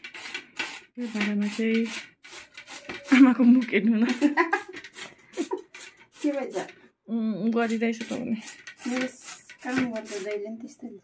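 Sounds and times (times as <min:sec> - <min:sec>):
woman talking: 0:01.0 - 0:01.9, 0:03.1 - 0:04.5, 0:06.2 - 0:11.0.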